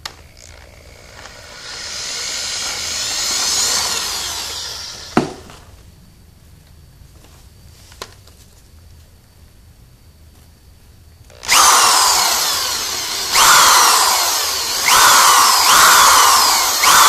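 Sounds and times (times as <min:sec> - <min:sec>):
electric drill boring into metal: 0:00.2 - 0:05.3, 0:11.3 - 0:17.0.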